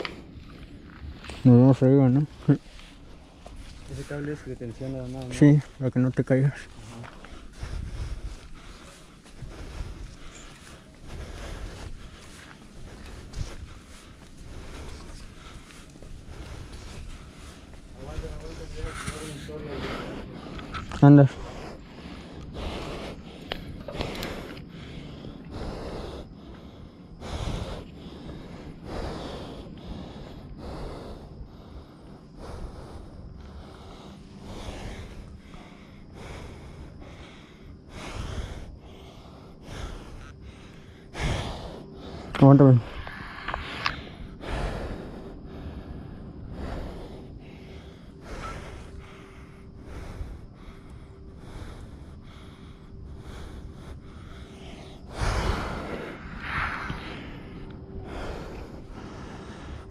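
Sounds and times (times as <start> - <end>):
heavy breathing: 0.0 - 59.9.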